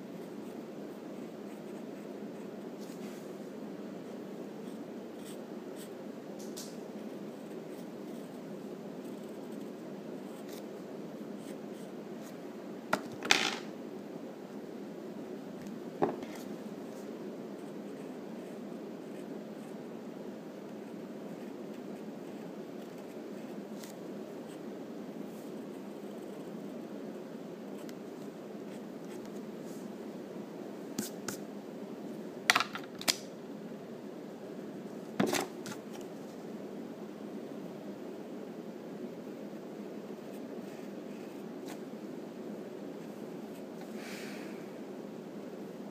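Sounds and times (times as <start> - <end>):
steady low hum: 0.0 - 32.5
low background noise: 0.0 - 45.9
pencil scratching on paper: 1.2 - 2.6.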